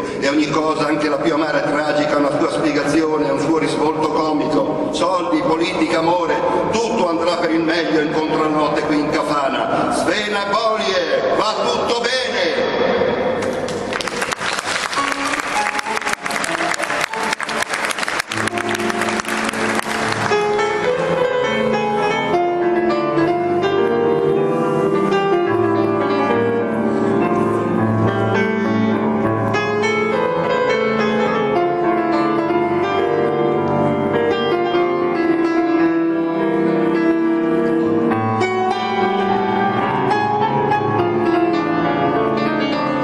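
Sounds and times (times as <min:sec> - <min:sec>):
grand piano melody: 0:00.0 - 0:43.0
audience applauding: 0:13.4 - 0:20.8.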